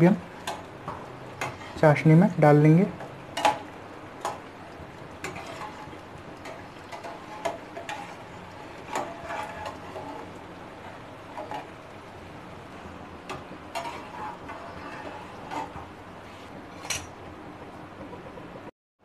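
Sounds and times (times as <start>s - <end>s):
oil frying hiss: 0.0s - 18.4s.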